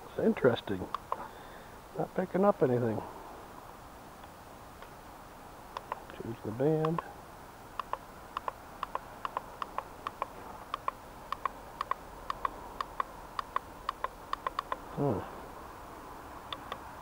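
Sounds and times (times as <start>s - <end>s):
rapid button ticks: 7.8s - 14.8s.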